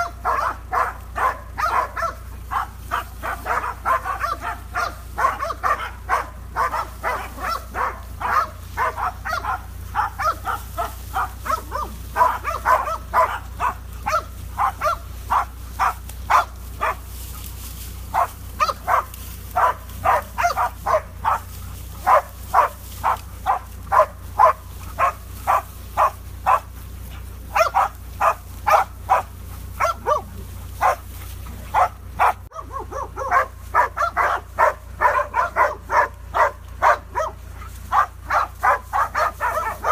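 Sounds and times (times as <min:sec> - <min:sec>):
dogs barking rapidly: 0:00.0 - 0:39.9
steady low hum: 0:00.0 - 0:39.9.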